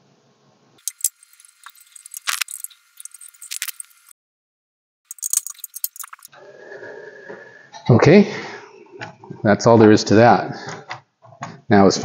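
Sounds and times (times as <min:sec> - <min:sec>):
screwdriver clicking on metal: 0:00.8 - 0:04.0, 0:05.1 - 0:06.3.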